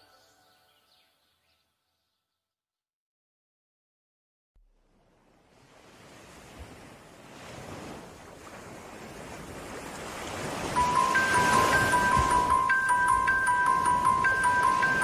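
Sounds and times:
surf-like rushing noise: 5.5 - 15.0
bright chiming music notes: 10.8 - 15.0.

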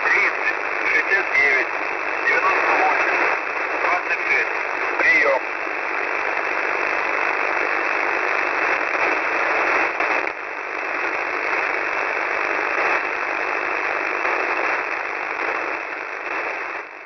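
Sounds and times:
radio static hiss: 0.0 - 17.0.

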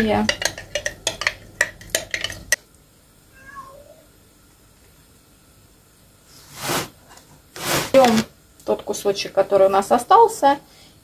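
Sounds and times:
spoon clinking glass jar: 0.0 - 2.6
cat meowing faintly: 3.3 - 4.1.

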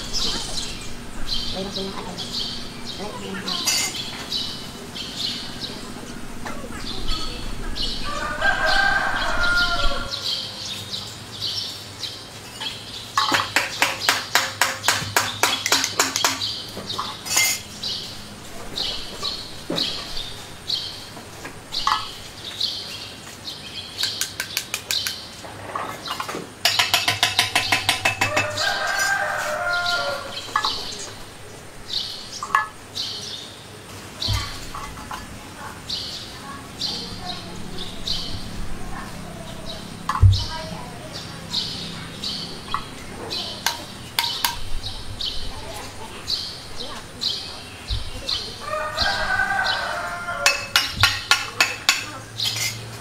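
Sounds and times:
small birds chirping: 0.0 - 53.0
rooster crowing: 7.8 - 10.6, 28.0 - 30.6, 48.6 - 50.9.

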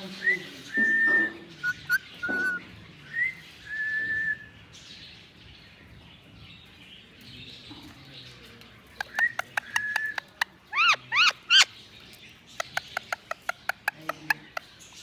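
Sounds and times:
parakeet whistling: 0.7 - 2.6, 9.0 - 11.7
parakeet chirps: 9.0 - 11.8, 12.4 - 15.0.

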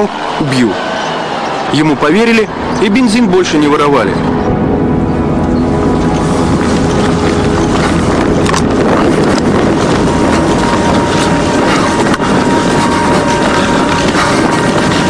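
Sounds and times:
wind buffeting microphone: 4.2 - 15.0
vehicle engine running: 4.9 - 15.0.

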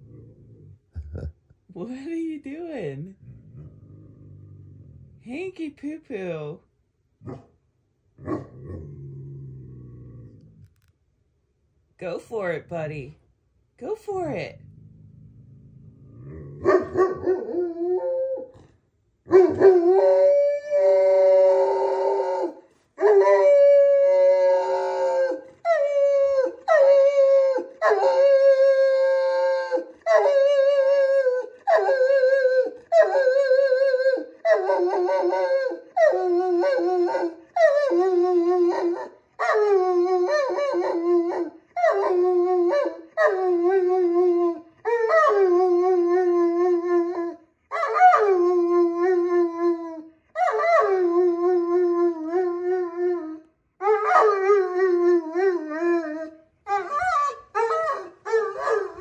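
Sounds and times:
dog howling: 16.2 - 18.7, 19.3 - 59.0.

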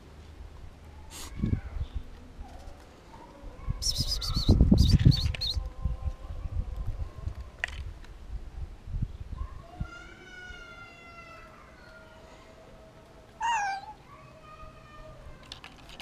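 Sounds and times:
bird chirps: 3.8 - 5.6.

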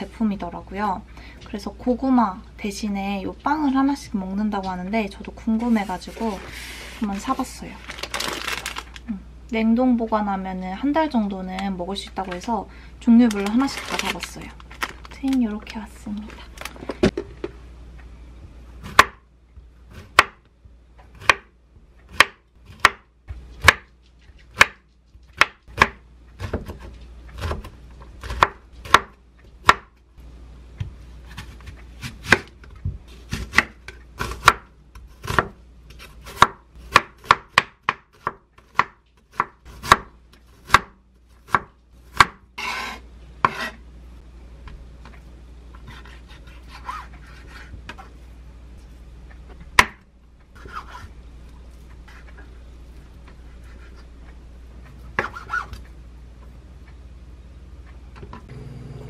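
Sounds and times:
knife chopping on wooden board: 18.9 - 19.2, 22.1 - 23.0, 23.6 - 23.9, 24.5 - 24.8, 25.4 - 29.9, 33.3 - 35.6, 36.3 - 43.8, 49.7 - 50.0
knife scraping board: 42.6 - 43.8, 45.8 - 48.2, 50.6 - 51.1, 53.5 - 54.1, 55.2 - 55.8.

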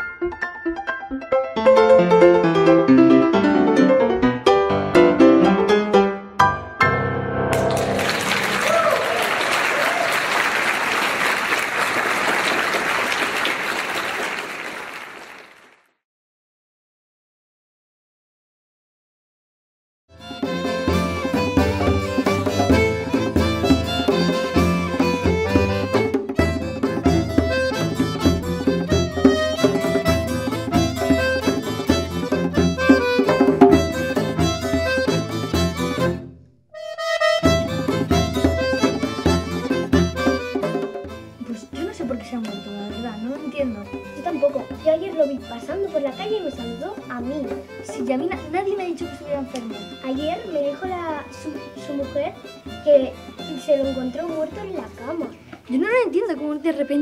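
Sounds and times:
music: 0.0 - 13.5, 20.1 - 57.0
audience applauding: 7.5 - 15.9.

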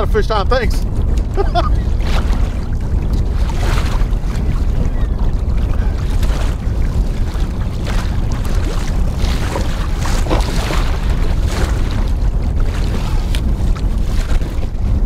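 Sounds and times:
waves slapping against hull: 0.0 - 15.0
wind buffeting microphone: 0.0 - 15.0.

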